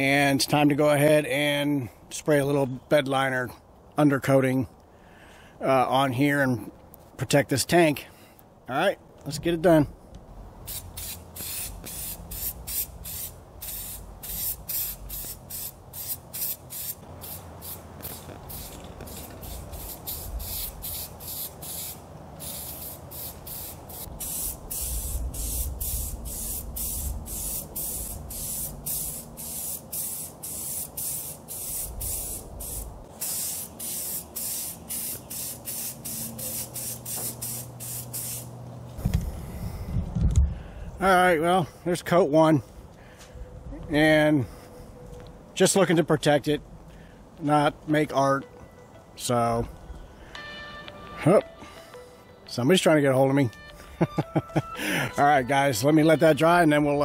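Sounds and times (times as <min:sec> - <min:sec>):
aerosol can spraying bursts: 0:10.7 - 0:38.5.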